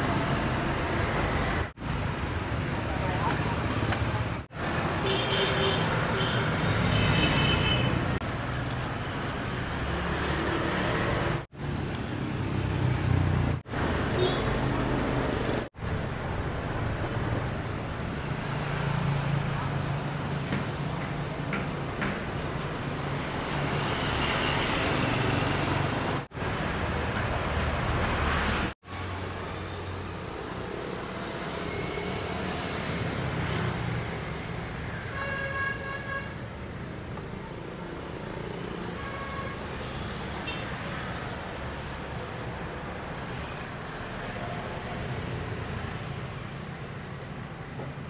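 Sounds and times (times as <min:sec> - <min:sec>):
passing motorbikes hum: 0:36.5 - 0:39.0.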